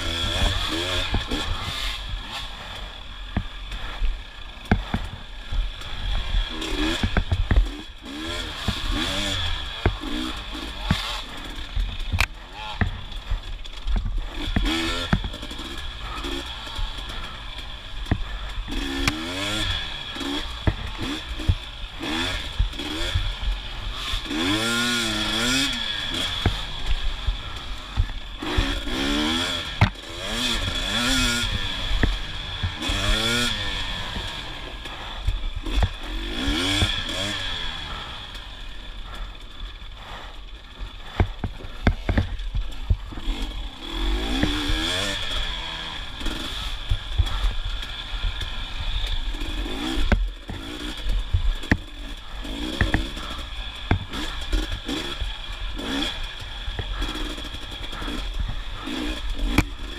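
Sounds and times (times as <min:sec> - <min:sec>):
dirt bike engine revving: 0:00.0 - 0:59.9
sharp knocks and clatter: 0:04.6 - 0:17.2, 0:18.0 - 0:34.5, 0:40.8 - 0:43.5.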